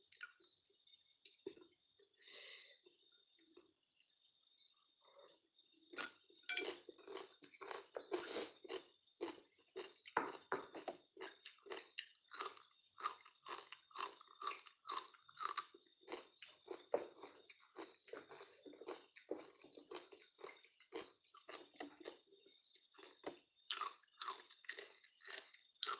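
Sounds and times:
person chewing crunchy food: 5.9 - 25.9.

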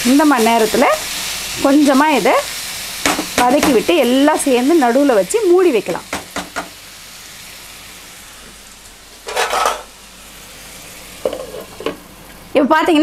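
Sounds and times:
chicken sizzling in a pan: 0.0 - 13.0
steel ladle scraping a pan: 9.2 - 9.9.

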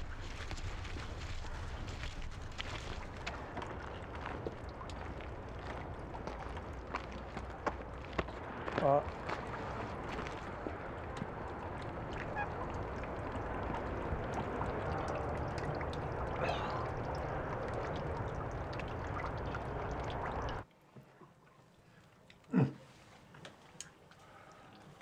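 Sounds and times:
outdoor background noise: 0.0 - 25.0
waterfowl calling: 8.9 - 20.6.

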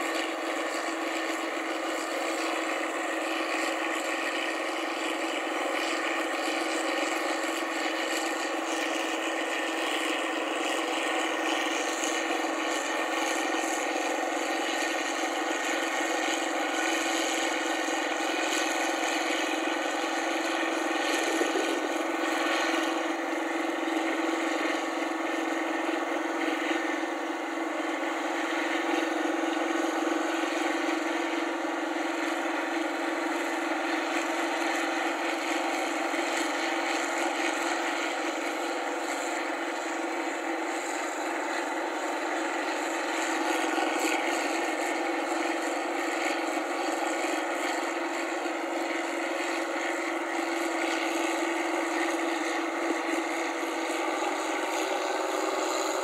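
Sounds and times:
combine harvester running: 0.0 - 56.0.

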